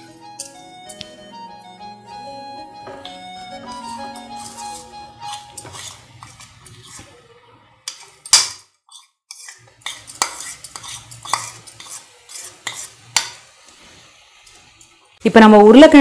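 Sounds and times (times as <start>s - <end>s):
spatula scraping and tapping plate: 0.4s - 1.1s, 2.8s - 7.2s, 7.8s - 13.4s.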